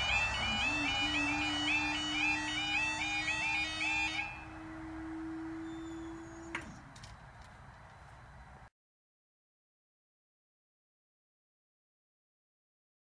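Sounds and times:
level crossing warbling alarm: 0.0s - 6.6s
barrier mechanism hum: 0.0s - 7.4s.

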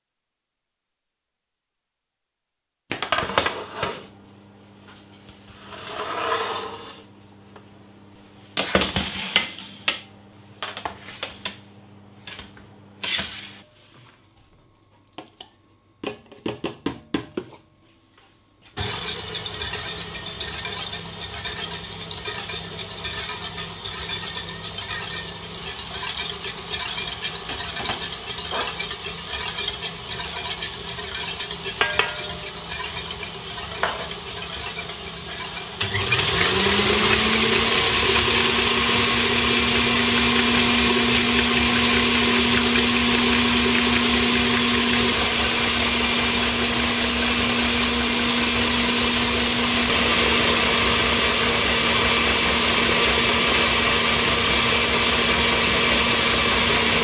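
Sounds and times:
stand mixer whisking: 18.8s - 57.0s
bowl clinking and knocking: 31.8s - 32.9s.

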